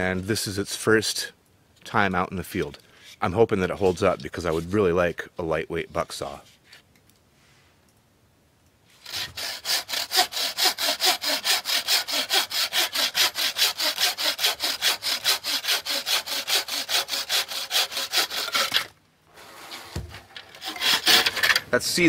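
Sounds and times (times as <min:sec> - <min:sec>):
hand saw rasping through log: 0:09.0 - 0:18.9, 0:20.4 - 0:21.6.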